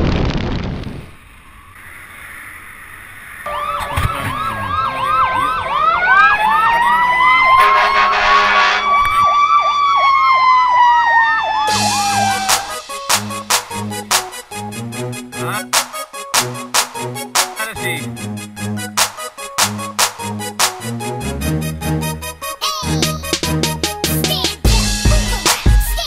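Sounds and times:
siren wailing: 2.8s - 14.0s
drum beat: 11.7s - 14.5s, 15.7s - 17.6s, 23.3s - 26.0s.

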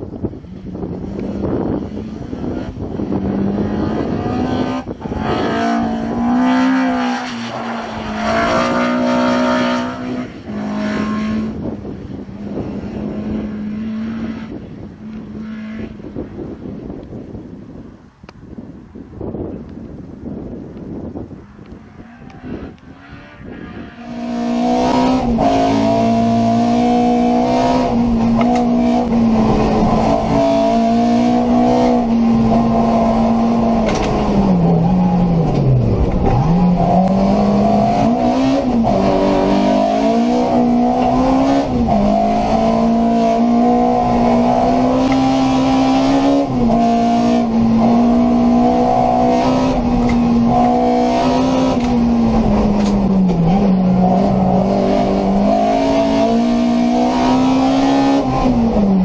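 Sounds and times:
car engine at high revs: 0.0s - 17.4s, 21.5s - 59.0s.

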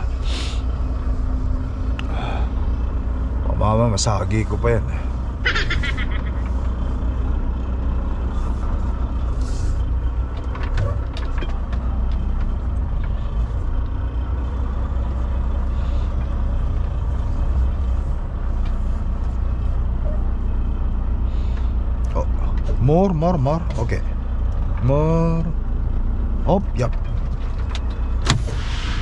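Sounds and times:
diesel truck engine rumbling: 0.0s - 29.0s
air hisses: 0.2s - 0.7s, 28.3s - 29.0s.

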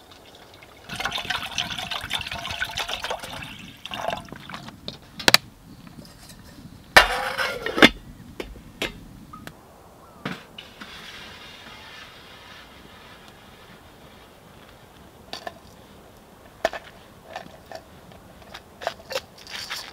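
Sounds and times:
water poured into metal pot: 0.0s - 4.7s
metal lid clattering on pot: 7.0s - 8.0s
light metal clinks: 16.5s - 19.9s.

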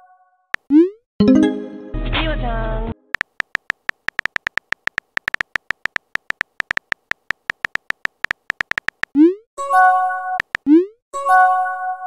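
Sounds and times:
phone keyboard tap clicks: 3.2s - 9.2s, 10.4s - 10.7s.

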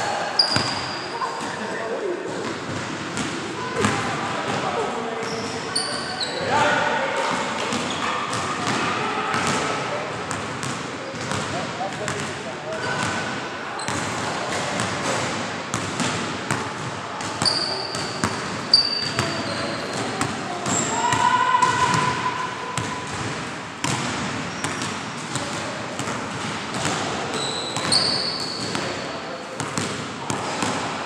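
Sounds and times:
sneakers squeaking on floor: 0.4s - 1.8s, 5.2s - 6.6s, 7.3s - 9.6s, 12.8s - 15.2s, 16.8s - 31.0s.

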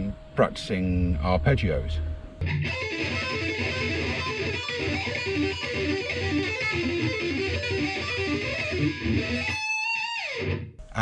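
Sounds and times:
electric guitar arpeggios: 2.4s - 10.8s.

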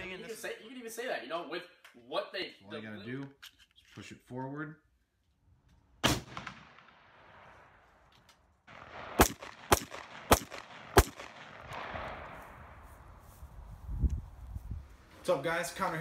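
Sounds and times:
rifle shots with rolling echo: 6.0s - 13.0s.

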